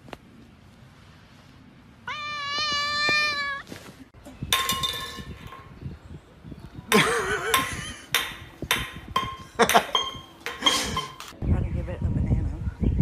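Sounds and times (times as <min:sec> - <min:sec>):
cat meowing: 0:02.0 - 0:03.7
clattering and clinking: 0:04.5 - 0:05.7, 0:08.2 - 0:11.4.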